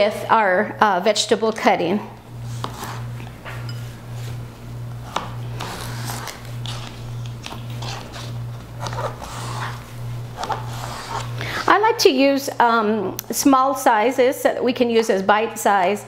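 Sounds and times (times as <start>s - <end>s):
low pulsing hum: 0.0s - 13.2s
knife cutting on plastic board: 2.5s - 3.2s, 5.0s - 11.4s.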